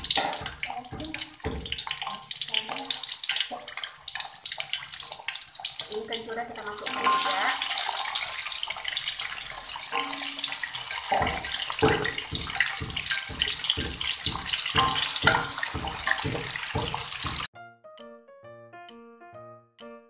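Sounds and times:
regular low knocks: 0.0s - 2.1s, 11.1s - 17.5s
food sizzling in hot oil: 0.0s - 17.5s
piano music: 9.9s - 20.0s.

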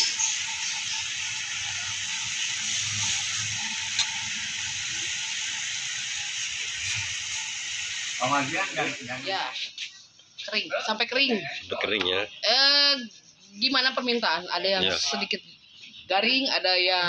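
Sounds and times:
fish sizzling in a grill pan: 0.0s - 10.0s.

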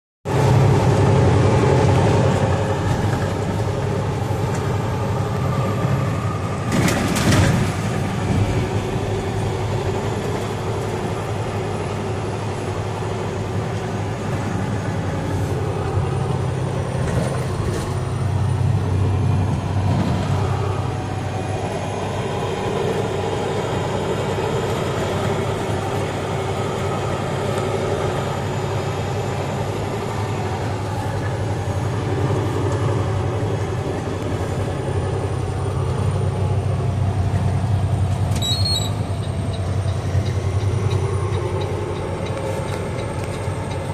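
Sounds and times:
road noise: 0.2s - 43.9s
truck engine drone: 0.3s - 43.9s.

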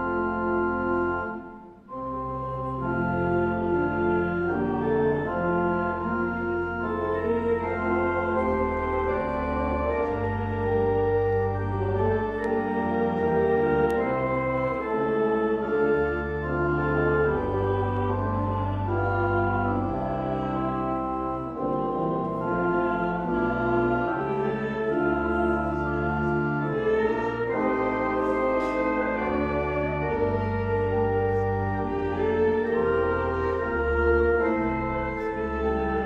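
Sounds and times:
organ playing slow chords: 0.0s - 36.0s.

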